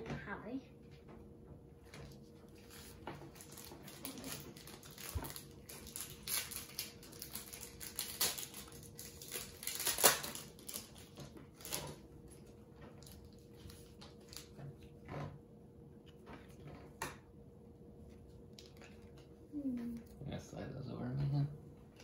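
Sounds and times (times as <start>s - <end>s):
foil wrapper crinkling and tearing: 2.6s - 12.0s.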